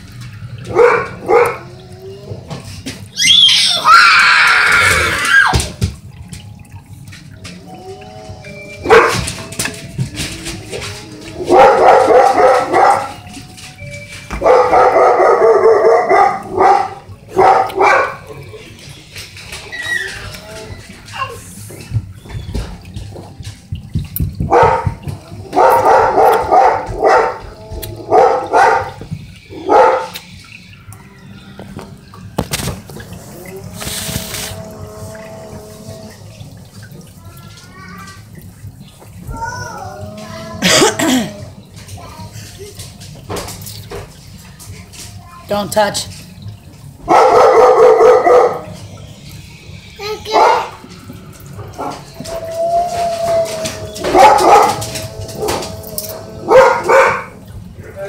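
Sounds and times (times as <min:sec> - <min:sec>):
dog barking: 0:00.7 - 0:01.7, 0:08.8 - 0:09.3, 0:11.5 - 0:13.2, 0:14.4 - 0:18.3, 0:24.5 - 0:27.5, 0:28.1 - 0:29.0, 0:29.6 - 0:30.2, 0:47.1 - 0:48.8, 0:50.3 - 0:50.8, 0:54.0 - 0:55.6, 0:56.4 - 0:57.4
dog whining: 0:07.6 - 0:16.8, 0:17.8 - 0:21.4, 0:51.8 - 0:58.0.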